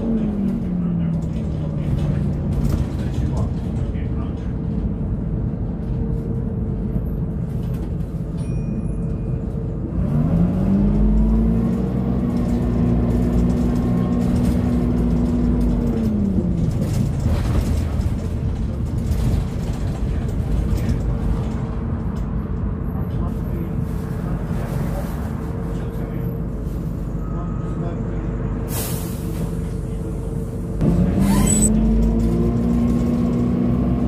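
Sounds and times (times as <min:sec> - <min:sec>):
bus diesel engine revving: 0:00.0 - 0:03.5, 0:09.8 - 0:18.3, 0:28.7 - 0:34.0.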